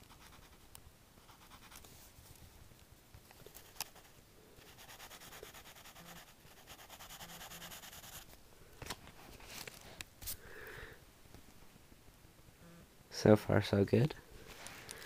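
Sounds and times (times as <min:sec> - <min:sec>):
pencil scratching on paper: 0:00.0 - 0:00.6, 0:01.2 - 0:01.9, 0:03.5 - 0:08.3.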